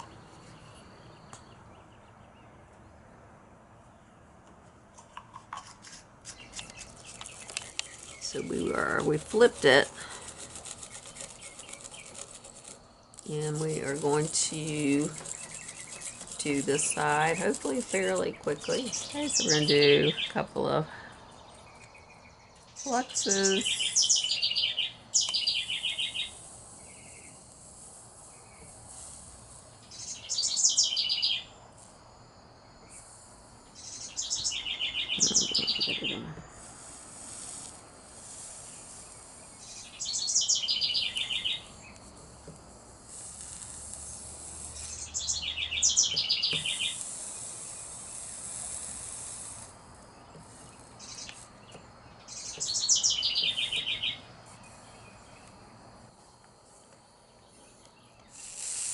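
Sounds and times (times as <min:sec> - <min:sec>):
songbird high trill: 0:13.4 - 0:20.4, 0:22.8 - 0:27.3, 0:29.9 - 0:31.5, 0:33.8 - 0:36.3, 0:39.6 - 0:41.7, 0:44.8 - 0:47.0, 0:51.0 - 0:55.4.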